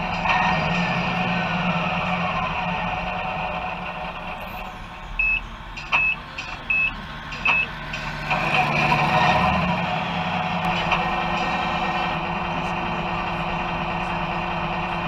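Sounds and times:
model truck engine sound: 0.0s - 15.0s
short reversing beeps: 5.2s - 7.7s.

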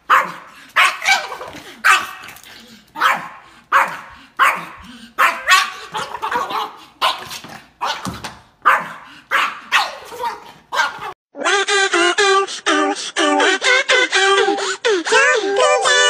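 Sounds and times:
small dog barking: 0.0s - 2.3s, 3.0s - 11.2s
music with singing: 11.4s - 16.0s.

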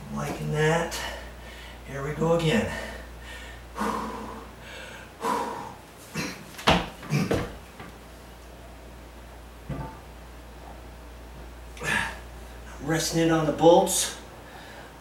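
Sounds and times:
man grunting: 11.8s - 12.2s.

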